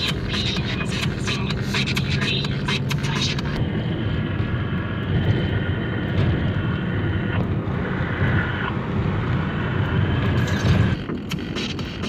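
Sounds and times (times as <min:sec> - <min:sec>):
music with a beat: 0:00.0 - 0:03.6, 0:10.2 - 0:12.0
car road and engine rumble: 0:00.0 - 0:12.0
wind noise on microphone: 0:03.4 - 0:11.4.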